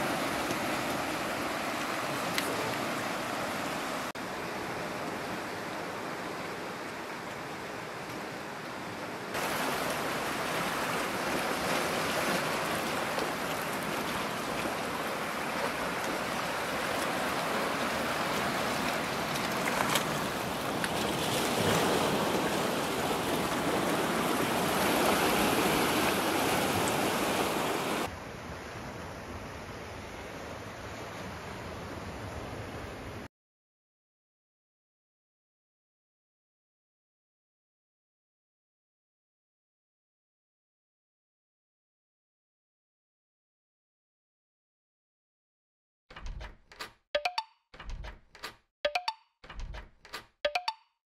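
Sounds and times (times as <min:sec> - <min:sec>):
surf washing among rocks: 0:00.0 - 0:28.1.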